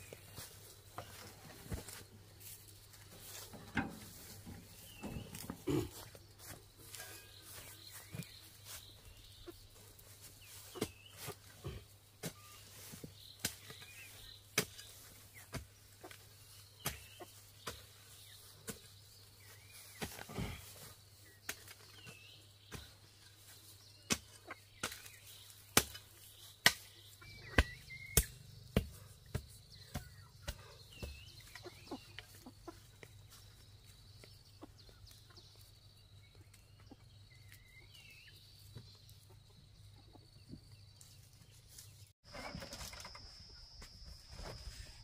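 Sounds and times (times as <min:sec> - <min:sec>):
chickens clucking: 0:00.0 - 0:20.9, 0:24.2 - 0:26.3, 0:27.1 - 0:41.9
tool striking soil: 0:10.7 - 0:11.4, 0:12.2 - 0:16.2, 0:16.8 - 0:20.7, 0:21.4 - 0:32.2.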